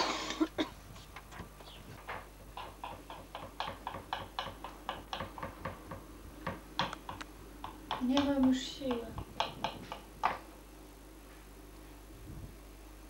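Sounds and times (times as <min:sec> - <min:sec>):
knife chopping on wooden board: 0:02.6 - 0:10.4.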